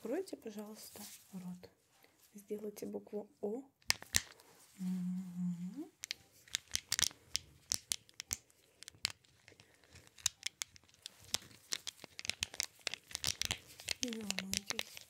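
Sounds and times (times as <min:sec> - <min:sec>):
rubber gloves crackling: 0:03.8 - 0:05.2, 0:05.9 - 0:15.0.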